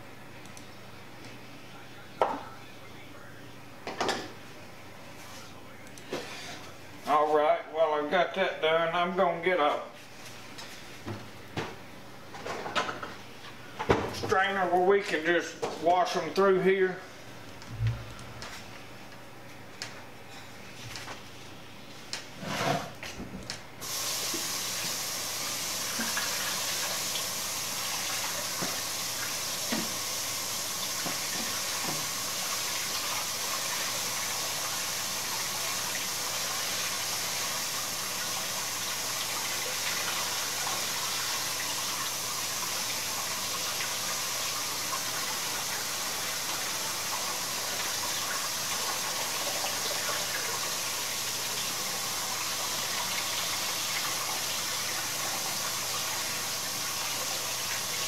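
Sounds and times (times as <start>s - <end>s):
tap water pouring through colander: 23.8s - 58.0s.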